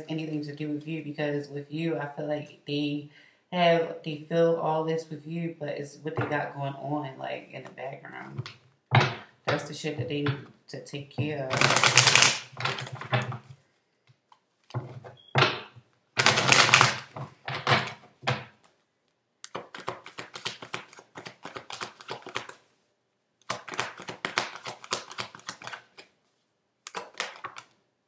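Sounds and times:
cards rustling in hands: 11.5 - 15.2, 16.2 - 17.4, 18.6 - 22.8, 23.4 - 27.8.

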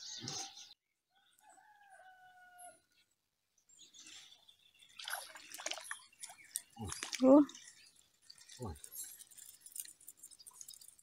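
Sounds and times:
rooster crowing: 1.4 - 2.8.

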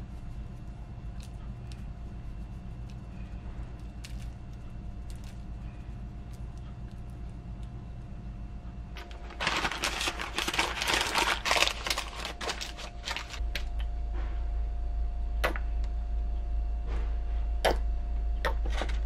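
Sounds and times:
steady low hum: 0.0 - 19.0
baking paper crinkling: 9.0 - 13.4.

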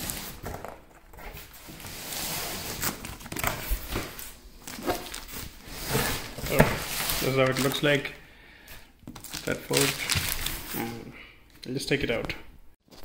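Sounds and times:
cardboard flaps scraping and rustling: 0.0 - 8.0
plastic wrap crinkling: 2.7 - 8.2, 9.0 - 11.0.

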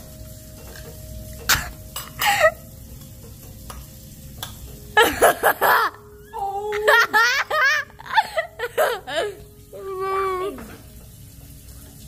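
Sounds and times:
boy exclaiming with wavering pitch: 9.7 - 10.7.

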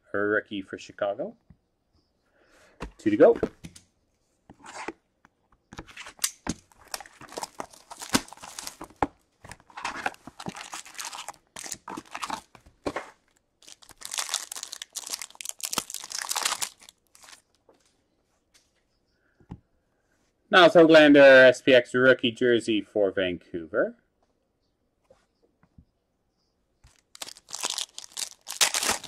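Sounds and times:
foil packs crinkling and tearing: 6.7 - 9.0, 9.6 - 12.6, 13.6 - 17.5, 26.9 - 29.0.

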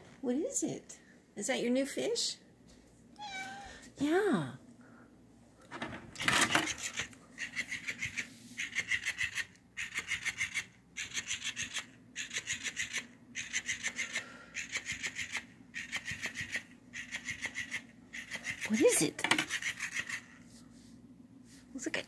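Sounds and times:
toy motor and joints rattling: 6.2 - 20.4.

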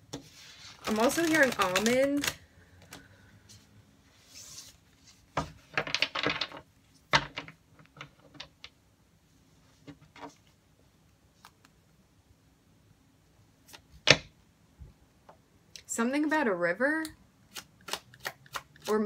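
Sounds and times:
cards being shuffled: 0.1 - 3.1, 17.5 - 19.0.

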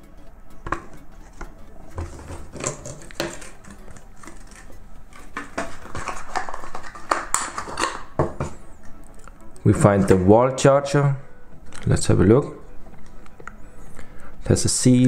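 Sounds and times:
cardboard box rustling and scraping: 1.9 - 3.6.

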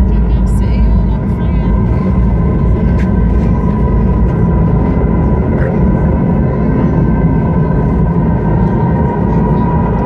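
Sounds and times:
aircraft engines droning: 0.0 - 10.0.

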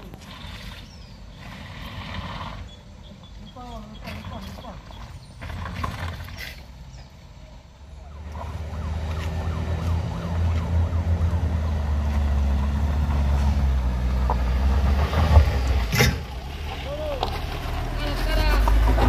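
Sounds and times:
van engine pulling uphill: 0.0 - 19.0
faint warbling siren-like tone: 8.0 - 12.0.

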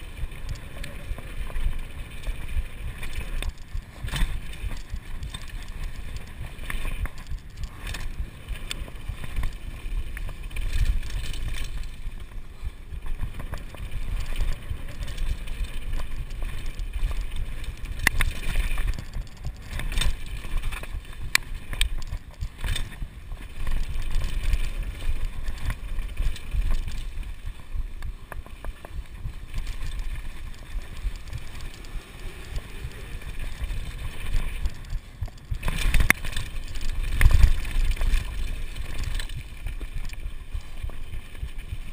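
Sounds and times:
bike clicking and rattling: 0.0 - 41.9
bike tyres rumbling on gravel: 0.0 - 41.9.

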